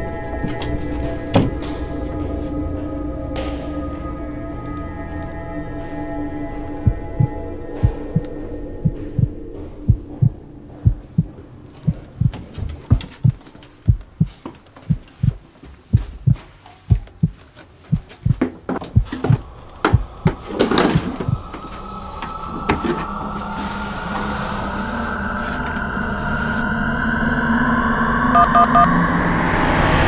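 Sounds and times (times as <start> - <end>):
heartbeat thumps: 6.8 - 21.7
rushing swell: 19.4 - 30.0
tone rising in pitch: 23.8 - 30.0.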